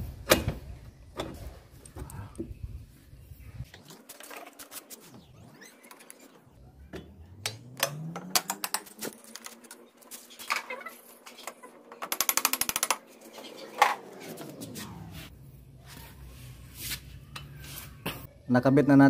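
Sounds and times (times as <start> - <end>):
low hum: 6.4 - 10.0.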